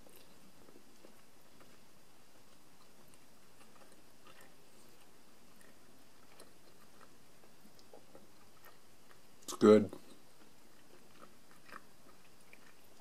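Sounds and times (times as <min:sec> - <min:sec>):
soft chewing: 0:00.0 - 0:13.0.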